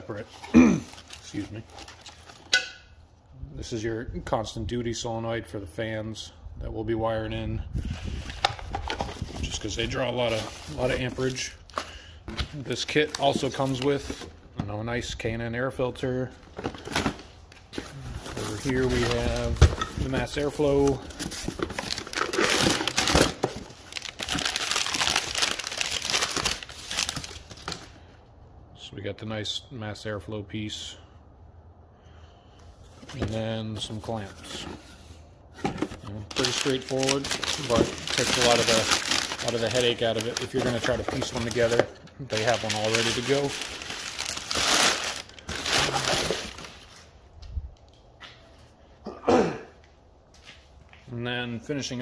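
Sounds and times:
packing paper crumpling: 0:17.9 - 0:27.8, 0:36.3 - 0:47.1.

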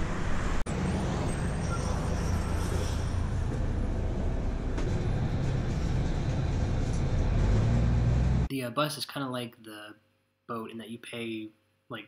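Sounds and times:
bus engine rumble: 0:00.0 - 0:08.5
road noise: 0:00.0 - 0:08.5
street traffic noise: 0:00.0 - 0:08.5.

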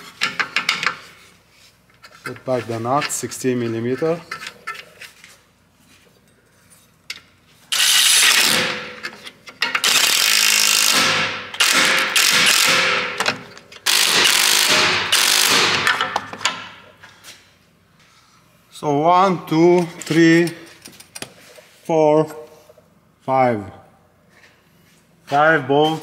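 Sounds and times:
impact wrench whine and hammering: 0:07.7 - 0:16.8.

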